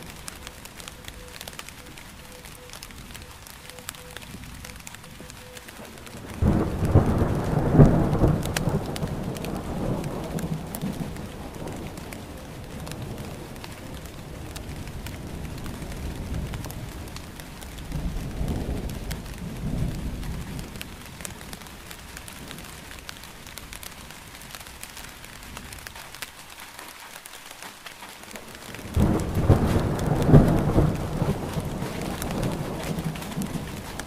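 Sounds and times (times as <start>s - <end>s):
thunder rumbling: 0.0s - 25.9s, 28.4s - 34.0s
rain pattering: 0.0s - 34.0s.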